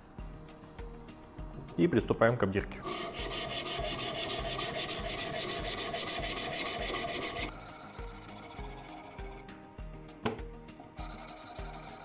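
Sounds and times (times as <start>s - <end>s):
sharpening stone rasping on blade: 2.8s - 9.5s, 11.0s - 12.0s.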